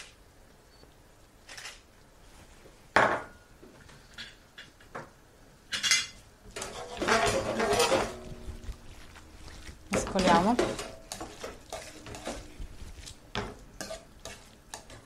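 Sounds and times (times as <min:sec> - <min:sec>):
metal utensil scraping pan: 0:05.8 - 0:08.6, 0:09.9 - 0:12.6, 0:13.4 - 0:15.0.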